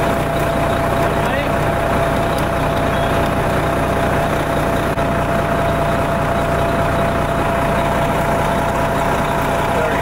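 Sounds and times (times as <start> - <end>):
heavy engine idling: 0.0 - 10.0
thin steady whine: 0.0 - 10.0.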